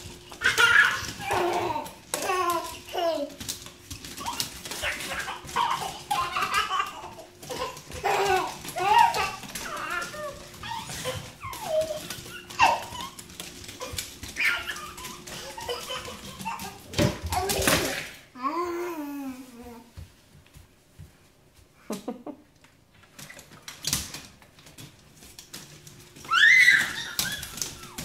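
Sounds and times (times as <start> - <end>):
toddler babbling excitedly: 0.4 - 3.4, 4.2 - 13.2
dog whining: 8.2 - 16.6, 26.2 - 28.0.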